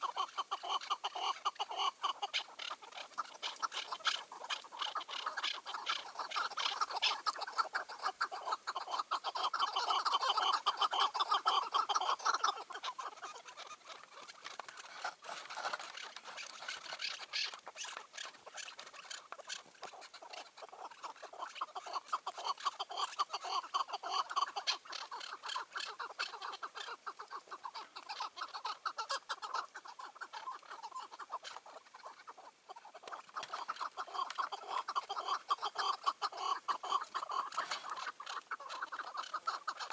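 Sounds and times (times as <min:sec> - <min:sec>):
partridge calling chuck notes: 0:00.0 - 0:39.9.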